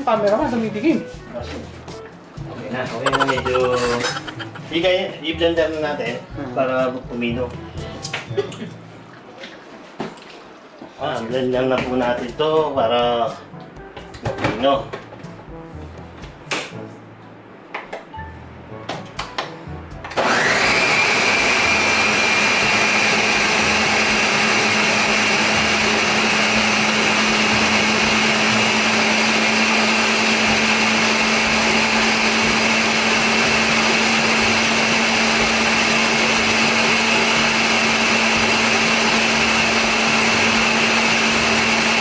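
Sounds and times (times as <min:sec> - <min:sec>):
blender running: 0:20.2 - 0:42.0.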